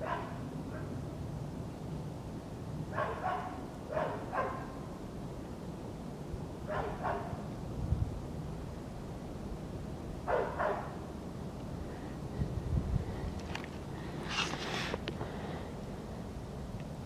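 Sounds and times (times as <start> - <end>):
puppy yapping: 3.0 - 4.7, 6.7 - 7.3.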